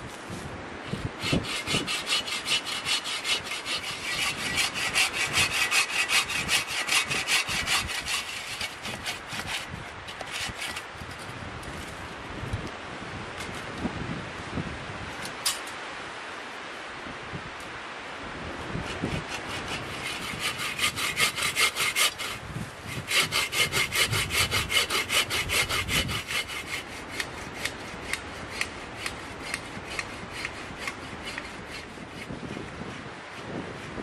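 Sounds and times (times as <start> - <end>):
hand saw cutting wood: 0.8 - 11.9, 18.8 - 33.6.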